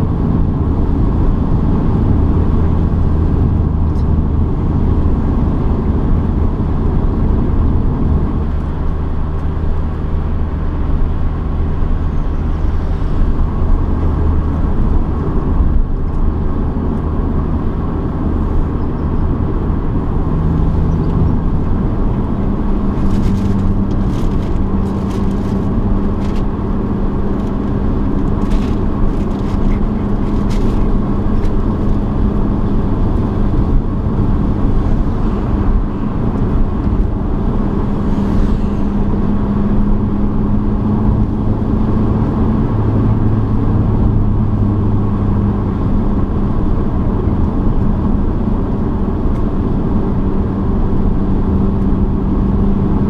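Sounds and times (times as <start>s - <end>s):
car engine running: 0.0s - 53.0s
tyre and road noise: 0.0s - 53.0s.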